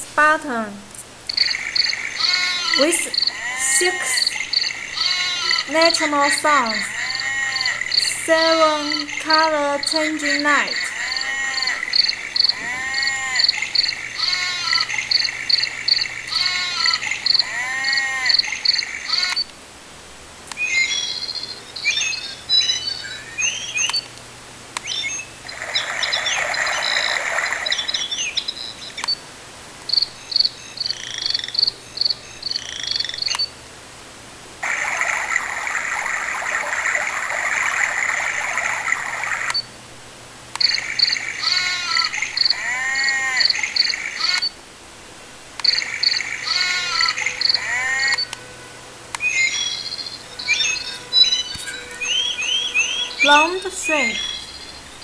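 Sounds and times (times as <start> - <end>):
steady rushing hiss: 0.0 - 20.6, 29.2 - 38.4
frog and insect chirping: 1.2 - 19.5, 20.5 - 24.1, 24.8 - 33.6, 34.6 - 39.8, 40.5 - 44.6, 45.6 - 48.5, 49.1 - 55.0
trilling bird calls: 1.3 - 19.5, 20.5 - 24.2, 24.8 - 29.2, 29.9 - 33.6, 40.6 - 44.6, 45.6 - 48.4, 49.2 - 55.0.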